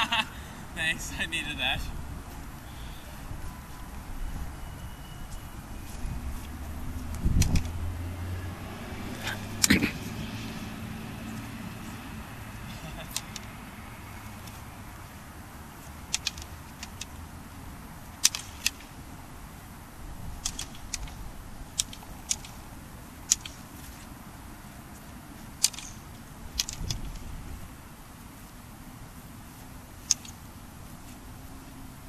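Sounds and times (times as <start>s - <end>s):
practice swords clacking: 16.0s - 17.2s, 18.1s - 19.0s, 23.3s - 23.9s.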